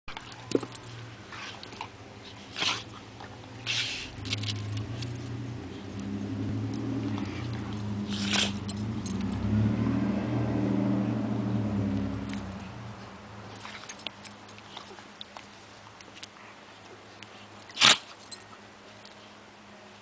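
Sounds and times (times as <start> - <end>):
dogs low rumbling: 0.4 - 13.2.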